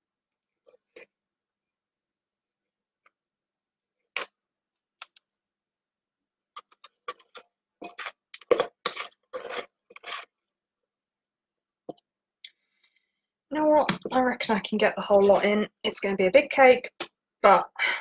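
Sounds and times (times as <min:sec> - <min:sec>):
wooden spoon scraping metal bowl: 0:06.6 - 0:10.4, 0:13.9 - 0:15.7.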